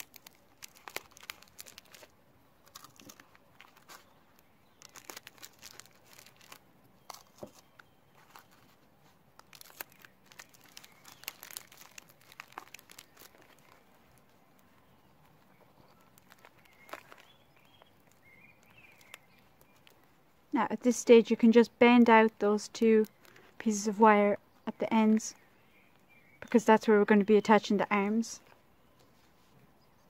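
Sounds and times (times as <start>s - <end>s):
newspaper crinkling and crackling: 0.0s - 20.2s, 22.2s - 23.6s.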